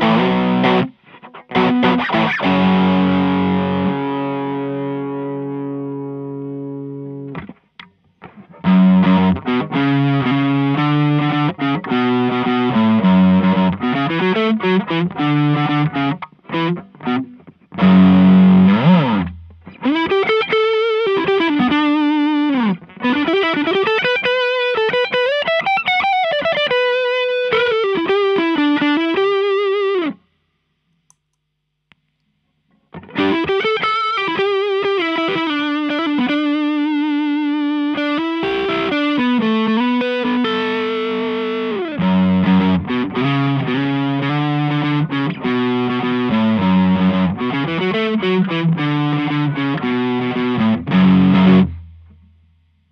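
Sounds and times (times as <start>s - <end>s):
overdriven electric guitar lead: 0.0s - 30.2s, 32.9s - 52.3s.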